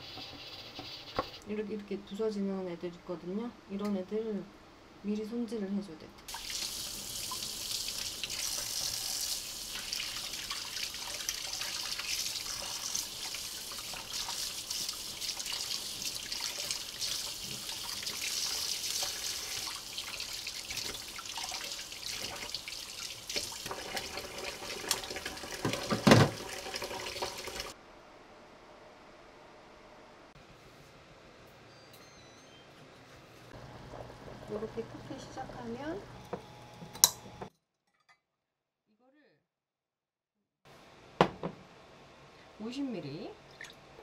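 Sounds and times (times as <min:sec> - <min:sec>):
tap water splashing in a sink: 0:06.3 - 0:27.8.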